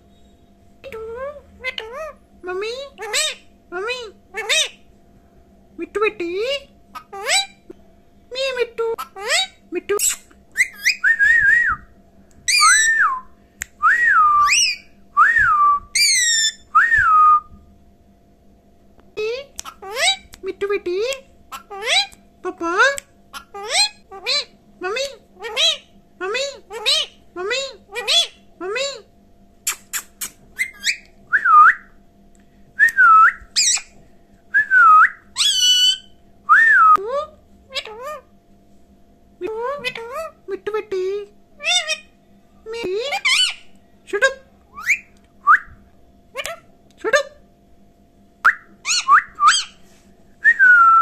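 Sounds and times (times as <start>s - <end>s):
harsh buzzy bird calls: 6.9s - 7.7s, 8.4s - 11.0s, 12.5s - 13.0s, 14.4s - 15.0s, 16.0s - 16.7s, 19.6s - 20.3s, 21.5s - 22.2s, 23.3s - 24.6s, 25.2s - 28.6s, 29.7s - 31.2s, 33.4s - 34.0s, 35.1s - 36.2s, 41.6s - 43.8s
squeaky bird chirps: 9.0s - 11.0s, 12.5s - 13.0s, 14.4s - 14.9s, 16.0s - 16.7s, 29.7s - 31.1s, 33.5s - 34.0s, 35.4s - 36.2s, 43.1s - 43.7s, 48.8s - 49.8s
parakeet whistling: 9.1s - 11.8s, 12.5s - 13.3s, 13.9s - 17.2s, 30.6s - 31.9s, 32.9s - 34.0s, 34.6s - 37.0s, 44.7s - 45.7s, 48.5s - 49.8s.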